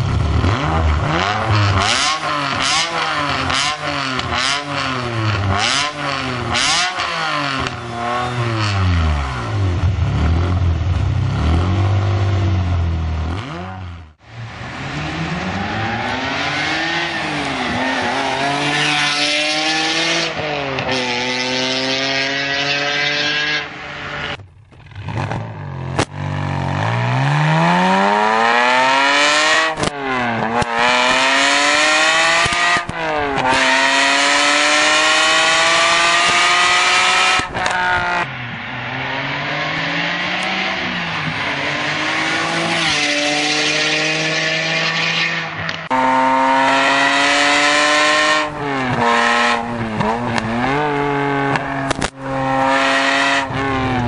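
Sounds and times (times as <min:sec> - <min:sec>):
car engine accelerating hard: 0:00.0 - 0:24.4, 0:25.0 - 0:54.0.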